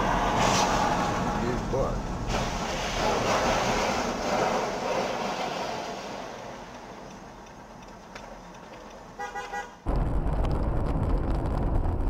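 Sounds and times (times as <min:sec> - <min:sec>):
car driving on dirt road: 0:00.0 - 0:09.2, 0:09.8 - 0:12.0
quiet street traffic: 0:00.0 - 0:09.9
car horn toots: 0:09.2 - 0:09.8.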